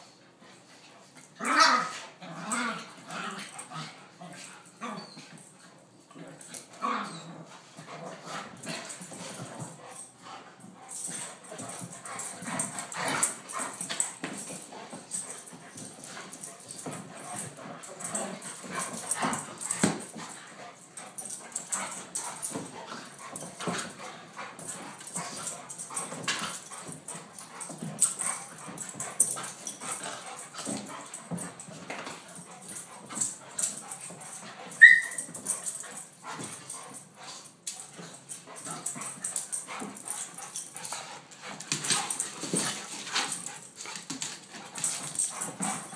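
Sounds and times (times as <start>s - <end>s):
dogs scuffling: 2.5s - 45.9s
dog whines and yips: 4.8s - 5.3s, 34.8s - 35.3s
dog yelping: 34.8s - 35.3s.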